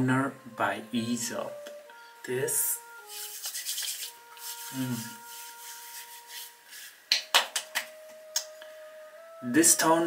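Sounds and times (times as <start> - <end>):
hands rubbing toner into skin: 3.0 - 7.9
sharp pats on face: 3.1 - 4.7, 5.4 - 8.5.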